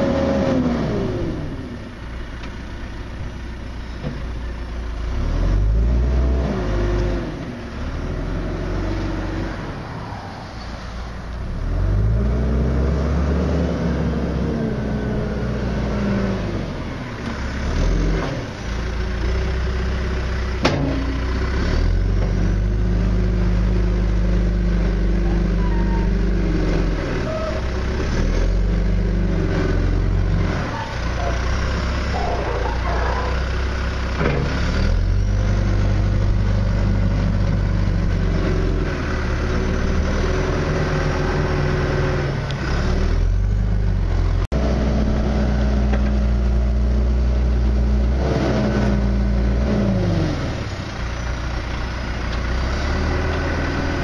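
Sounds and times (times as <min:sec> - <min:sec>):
diesel backhoe engine running: 0:00.0 - 0:09.8, 0:10.5 - 0:54.0.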